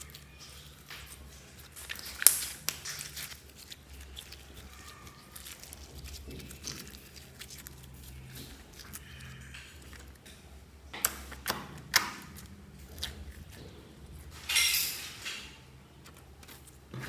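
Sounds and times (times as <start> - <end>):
slime squishing with clicks and pops: 0.0 - 13.5.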